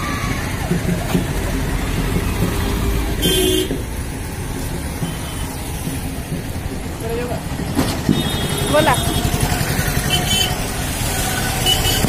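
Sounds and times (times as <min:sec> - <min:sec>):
traffic rumble of engines and tyres: 0:00.0 - 0:12.0
vehicle horn toot: 0:03.2 - 0:03.8, 0:08.1 - 0:09.3, 0:11.6 - 0:12.0.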